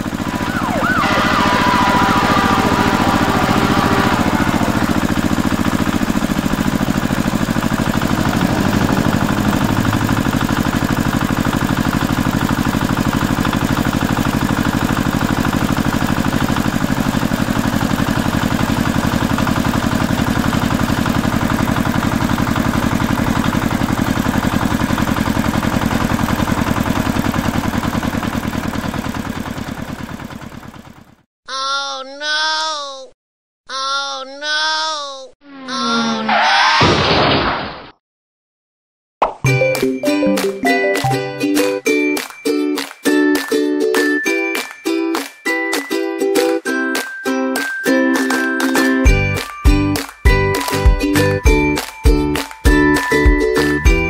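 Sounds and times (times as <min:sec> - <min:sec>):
tractor engine idling: 0:00.0 - 0:31.2.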